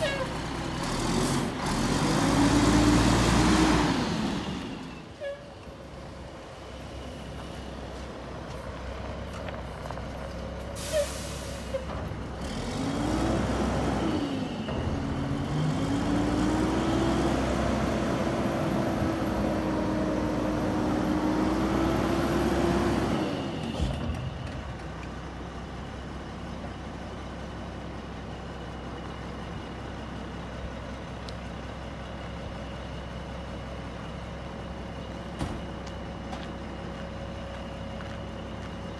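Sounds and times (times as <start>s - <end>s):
diesel engine idling and revving: 0.0s - 38.9s
air brake hiss: 10.8s - 11.9s.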